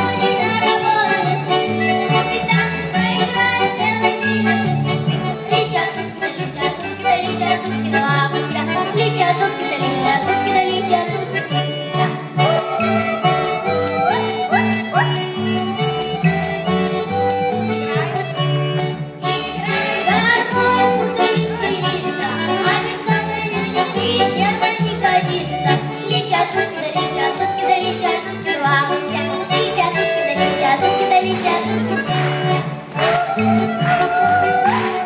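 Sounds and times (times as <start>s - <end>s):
backing track with beat: 0.0s - 35.0s
girls singing into microphones: 19.2s - 31.7s.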